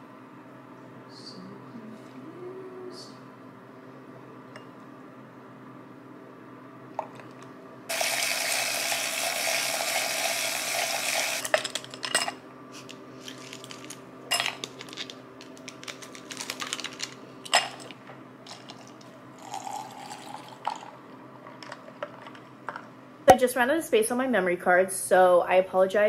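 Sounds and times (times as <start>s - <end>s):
ice cubes clinking in glass: 13.3s - 17.9s, 19.4s - 20.9s
liquid pouring into glass: 19.4s - 21.0s.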